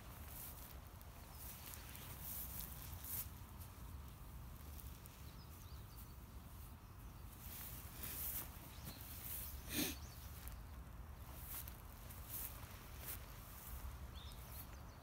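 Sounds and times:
soft rustles: 0:00.0 - 0:14.8
faint bird chirps: 0:04.8 - 0:11.5.

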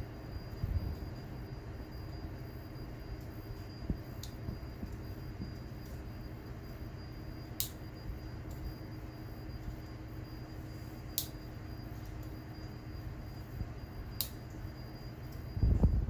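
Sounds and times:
faint steady tone: 0:00.0 - 0:16.0
sharp high tick: 0:14.2 - 0:14.4.

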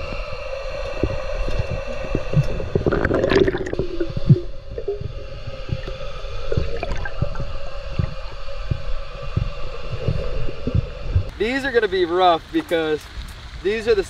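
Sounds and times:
underwater bubbles gurgling: 0:00.0 - 0:11.3
dull underwater thumps and knocks: 0:01.0 - 0:11.3.

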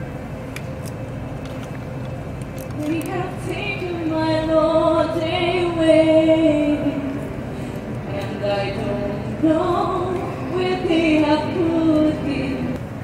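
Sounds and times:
woman singing slow melody: 0:02.8 - 0:07.2, 0:08.1 - 0:12.8.

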